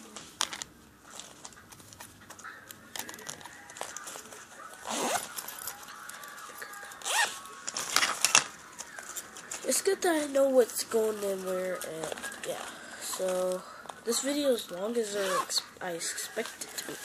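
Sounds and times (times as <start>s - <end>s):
plastic toys clicking and rustling: 0.4s - 15.2s
squeaky voice-like sounds: 4.7s - 7.5s, 15.1s - 15.7s.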